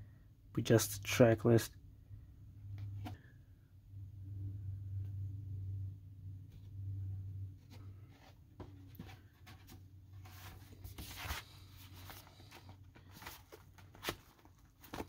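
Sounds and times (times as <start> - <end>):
cardboard and paper rustling: 7.6 - 15.0.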